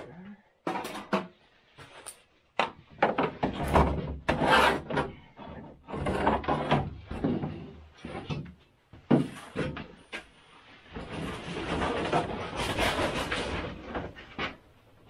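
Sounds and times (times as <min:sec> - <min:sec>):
clunks and knocks: 0:02.6 - 0:10.3
rubbing scrapes: 0:04.3 - 0:05.0, 0:10.6 - 0:14.0.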